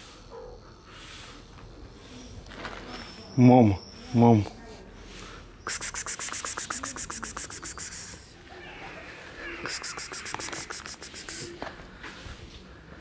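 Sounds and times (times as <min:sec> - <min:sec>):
person hissing pspsps: 0:05.0 - 0:08.4, 0:09.6 - 0:11.6.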